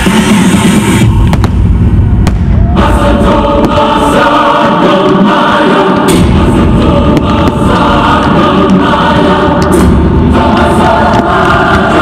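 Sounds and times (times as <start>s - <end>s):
fireworks bangs: 1.1s - 4.3s, 6.1s - 12.0s
choir singing held chords: 2.5s - 12.0s.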